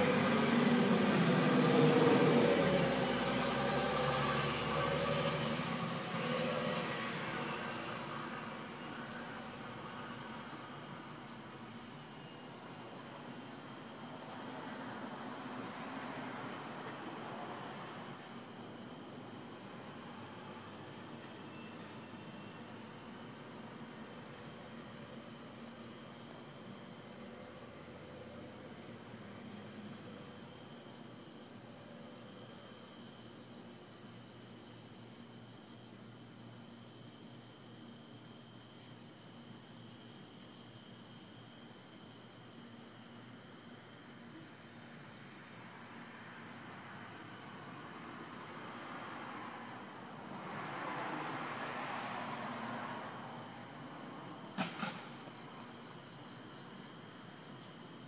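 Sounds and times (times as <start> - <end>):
crickets trilling: 0.0 - 58.0
low insect drone: 0.0 - 58.0.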